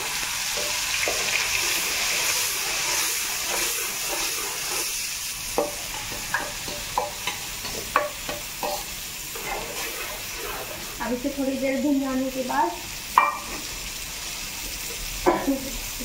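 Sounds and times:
paste sizzling in hot oil: 0.0s - 16.0s
metal spoon scraping a pot: 0.6s - 5.0s, 8.6s - 11.0s.

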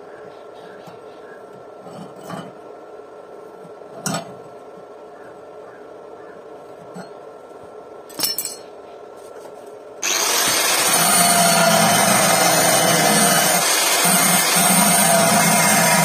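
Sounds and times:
angle grinder cutting steel: 10.0s - 16.0s.

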